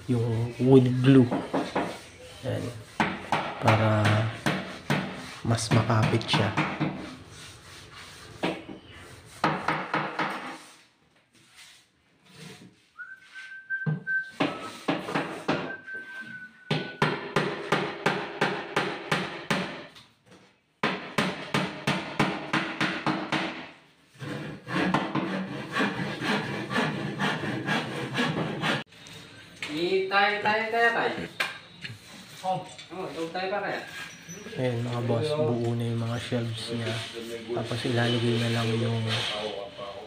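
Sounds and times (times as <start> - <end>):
person whistling: 13.0 - 14.9, 15.5 - 17.1.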